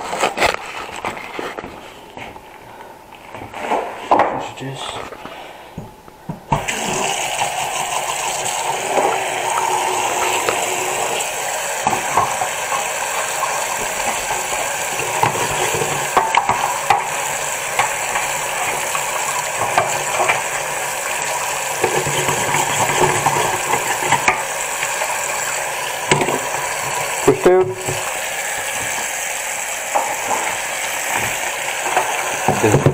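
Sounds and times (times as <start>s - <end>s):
tap running into metal sink: 8.4s - 29.1s, 29.9s - 32.9s.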